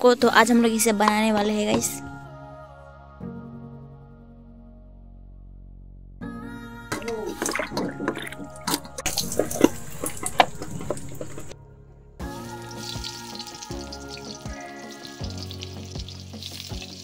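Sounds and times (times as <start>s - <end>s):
background music: 0.0s - 17.0s
hands splashing mushrooms in water: 6.9s - 11.6s, 12.7s - 17.0s
oil sizzling in a wok: 12.4s - 17.0s.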